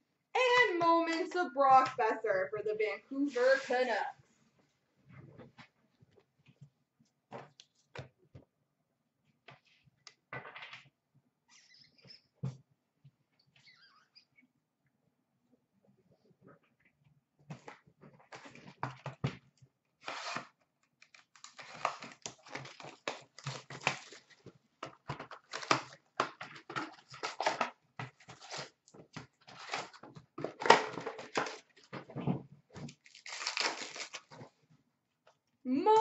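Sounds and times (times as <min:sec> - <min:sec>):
cardboard box tearing: 0:20.0 - 0:20.5, 0:33.0 - 0:34.3
foil packs crinkling: 0:20.0 - 0:24.5, 0:25.3 - 0:28.8, 0:29.4 - 0:31.9, 0:32.9 - 0:34.5.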